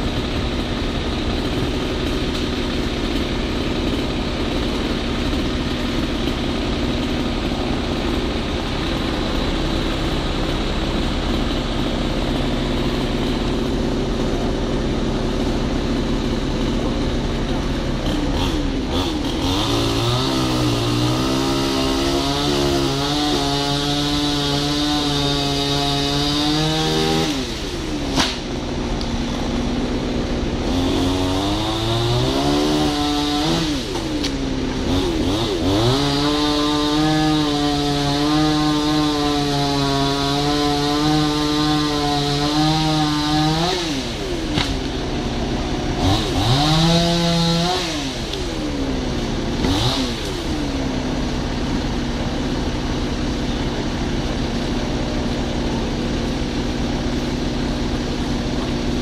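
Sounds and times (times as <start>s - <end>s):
chainsaw cutting: 0.0s - 59.0s
steady low engine: 0.0s - 59.0s.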